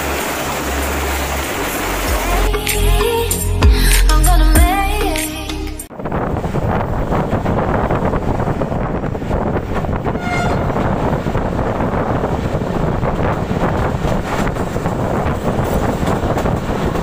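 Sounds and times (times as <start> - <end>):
wind rushing: 5.9 - 17.0
train wheels rumbling on rails: 6.0 - 17.0
train horn toot: 10.1 - 10.8.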